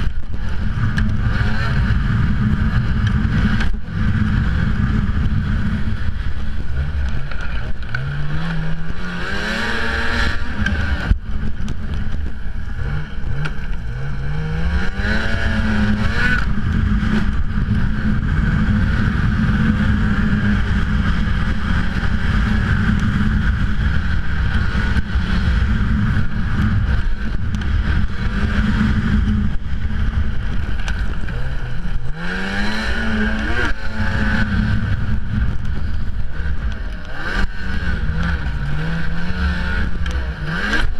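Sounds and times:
snowmobile engine revving: 0:00.0 - 0:40.9.

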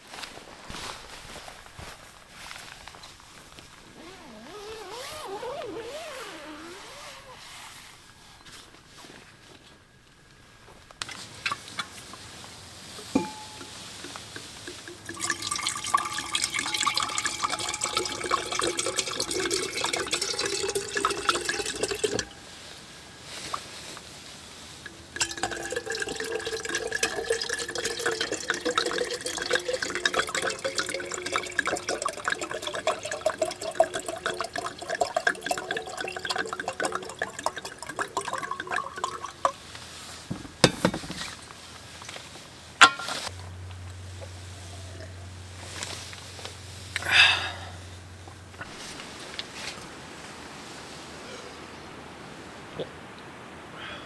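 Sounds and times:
liquid pouring into bottle: 0:13.1 - 0:22.3, 0:25.2 - 0:39.6.

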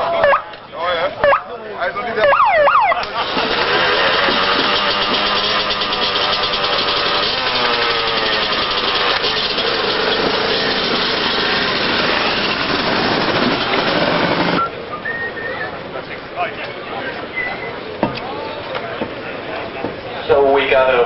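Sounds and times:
motorcycle engines revving: 0:02.2 - 0:16.3.

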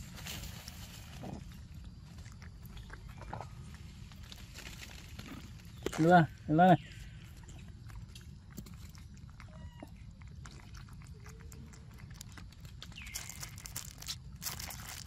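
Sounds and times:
baby monkey sucking milk: 0:06.9 - 0:15.0.

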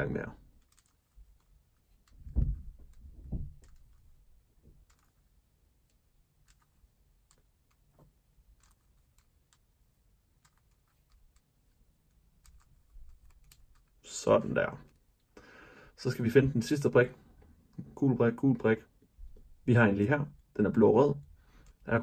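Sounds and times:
puzzle cube plastic clicks: 0:00.4 - 0:15.3, 0:21.2 - 0:22.0
low thump: 0:02.2 - 0:03.6.

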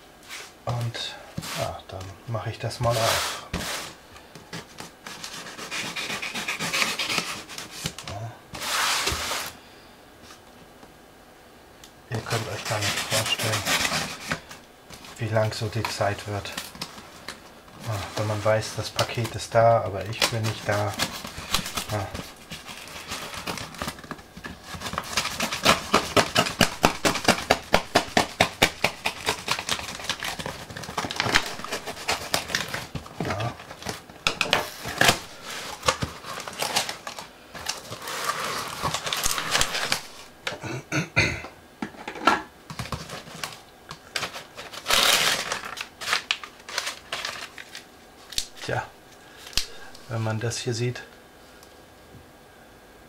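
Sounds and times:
knife slitting packing tape: 0:05.0 - 0:08.0, 0:12.3 - 0:14.5, 0:20.1 - 0:24.1, 0:24.7 - 0:40.2, 0:42.8 - 0:48.5.

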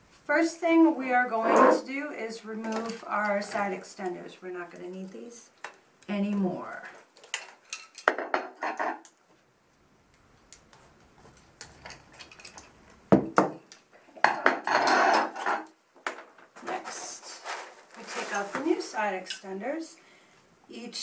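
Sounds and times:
scrape against foam packaging: 0:17.0 - 0:18.8.

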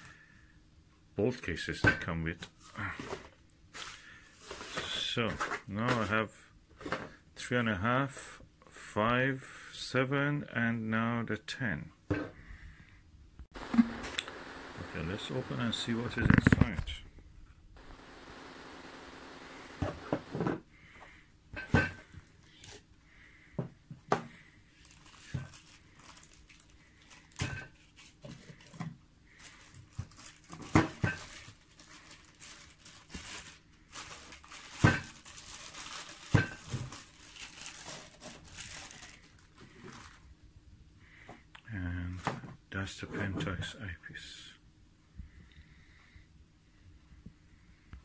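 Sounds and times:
plastic cling wrap crinkling: 0:24.8 - 0:28.8, 0:29.4 - 0:40.3.

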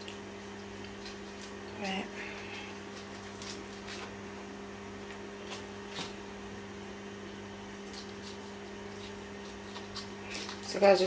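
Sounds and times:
foil crinkling: 0:00.0 - 0:04.2.

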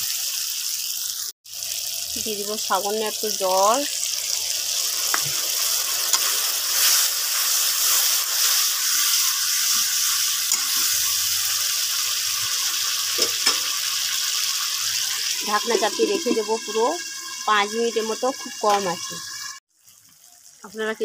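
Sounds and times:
masala sizzling in a pan: 0:00.0 - 0:21.0.

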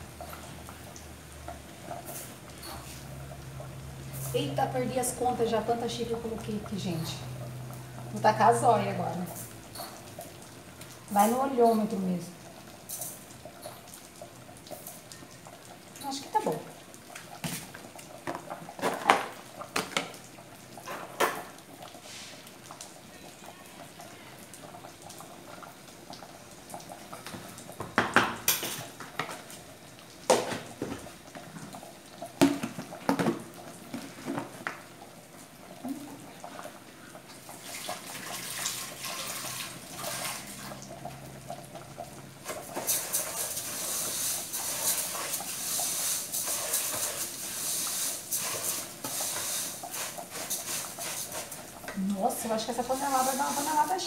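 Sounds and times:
metal pot and utensils clinking: 0:02.0 - 0:03.1, 0:09.3 - 0:10.2, 0:28.4 - 0:29.4.

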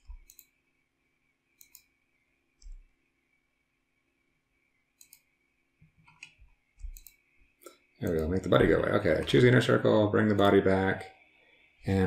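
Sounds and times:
computer mouse clicks: 0:00.0 - 0:00.6, 0:01.6 - 0:02.0, 0:02.6 - 0:02.9, 0:05.0 - 0:08.4.

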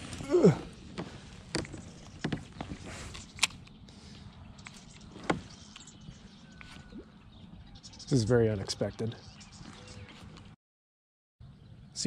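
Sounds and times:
fishing gear clicking and knocking: 0:00.9 - 0:03.8.

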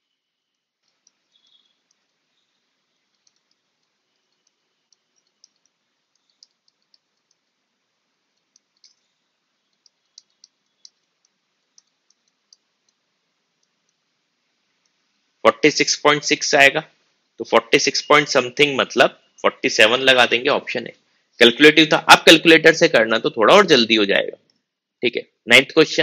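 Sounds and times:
stylus tapping on tablet: 0:03.0 - 0:07.5, 0:09.7 - 0:13.0.

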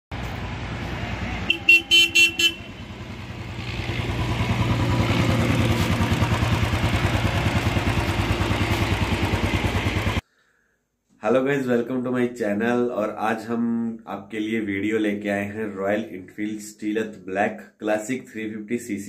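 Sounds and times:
horn beeps: 0:01.4 - 0:03.0
motorcycle engine thumping: 0:03.0 - 0:10.2.

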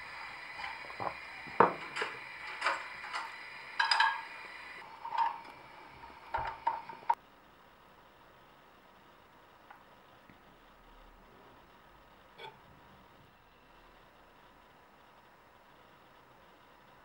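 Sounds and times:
cutlery clinking on a plate: 0:01.7 - 0:04.3.

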